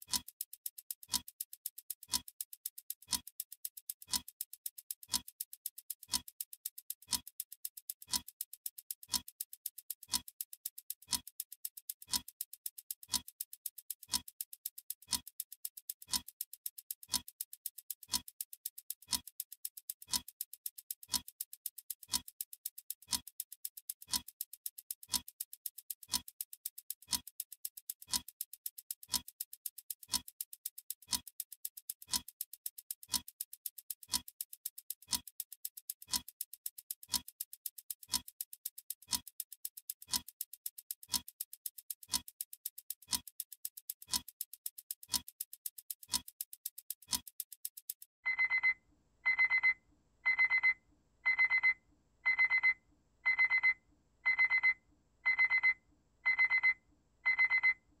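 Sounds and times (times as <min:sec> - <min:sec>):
clock ticking: 0:00.0 - 0:58.0
high-pitched electronic alarm beeps: 0:48.3 - 0:57.8.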